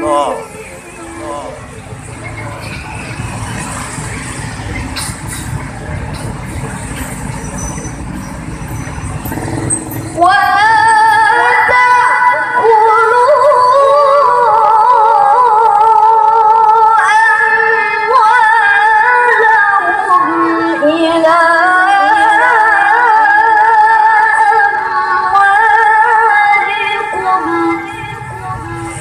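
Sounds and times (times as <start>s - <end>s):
woman reciting melodically: 10.1s - 29.0s.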